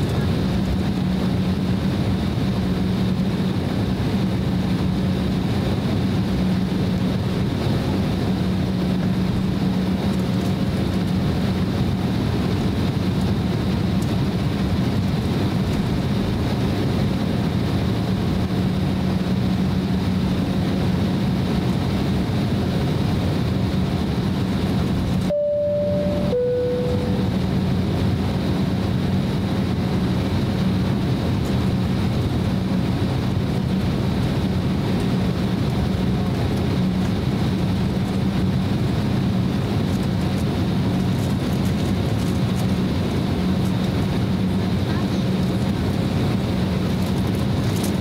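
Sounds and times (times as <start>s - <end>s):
airliner engines rumbling: 0.0s - 48.0s.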